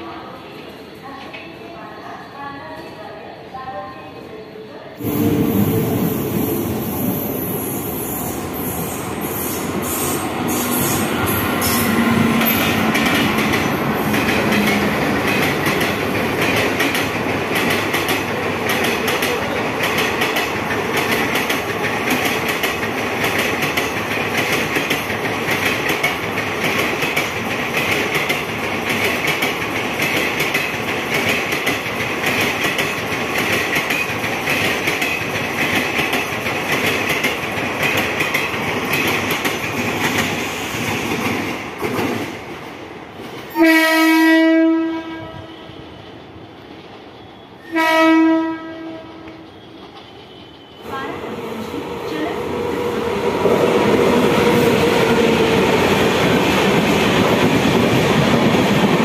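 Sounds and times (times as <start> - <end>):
train wheels rumbling on rails: 5.0 - 43.7, 48.9 - 59.0
clickety-clack over rail joints: 12.4 - 43.6, 49.2 - 50.6.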